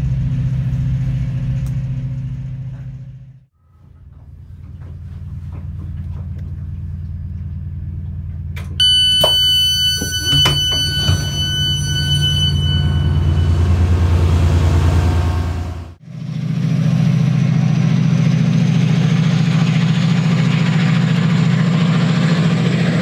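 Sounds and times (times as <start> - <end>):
idling diesel locomotive hum: 0.0 - 23.0
train low rumble: 0.0 - 23.0
train door clunks: 8.5 - 13.7
high electronic door warning tone: 8.8 - 15.4.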